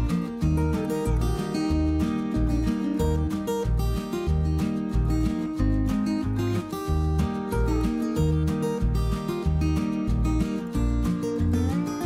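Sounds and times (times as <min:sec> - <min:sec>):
repeating bass line: 0:00.0 - 0:12.0
strummed acoustic guitar: 0:00.0 - 0:12.0.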